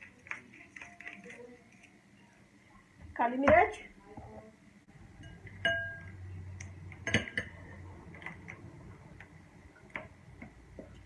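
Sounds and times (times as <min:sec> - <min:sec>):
dishes and utensils clinking: 0:05.2 - 0:06.2, 0:06.9 - 0:08.6
glass ringing: 0:05.2 - 0:06.2, 0:07.0 - 0:07.6.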